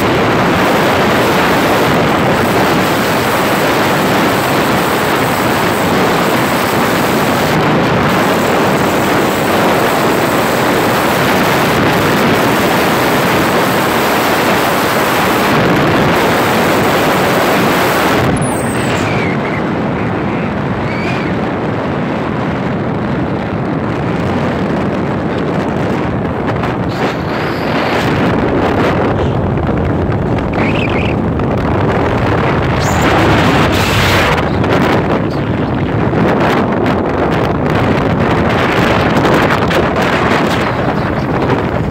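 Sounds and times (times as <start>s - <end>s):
vehicle road noise on dirt road: 0.0s - 41.9s
wind on microphone: 0.0s - 41.9s.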